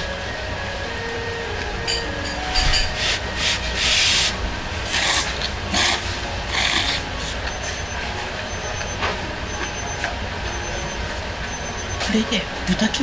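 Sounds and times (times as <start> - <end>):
steady low hum: 0.0 - 13.0
person slurping noodles: 3.0 - 7.4.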